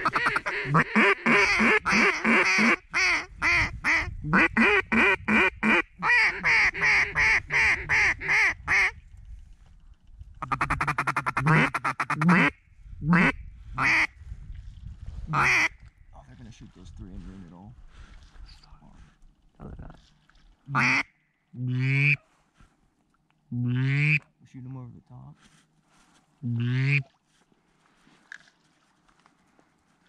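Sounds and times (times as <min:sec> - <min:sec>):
duck call quacks: 0:00.0 - 0:08.9, 0:10.4 - 0:14.1, 0:15.3 - 0:15.8, 0:20.7 - 0:22.2, 0:23.7 - 0:24.2, 0:26.5 - 0:27.0.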